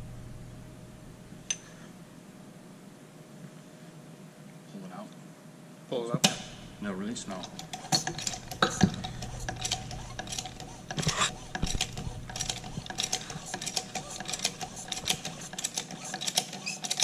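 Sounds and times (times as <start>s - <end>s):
hand pump metallic clicks and knocks: 7.3s - 17.0s.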